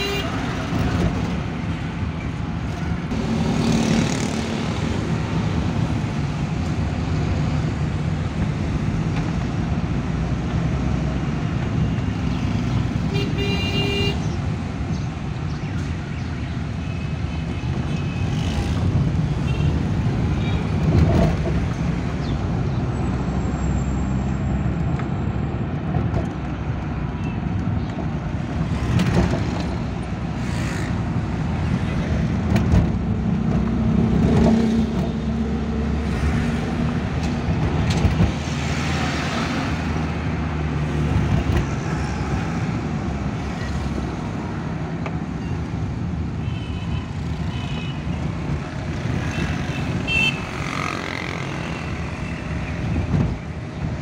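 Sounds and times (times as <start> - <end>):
vehicle horn toot: 0.0 - 0.4, 49.8 - 50.5
car engine and road noise: 0.0 - 54.0.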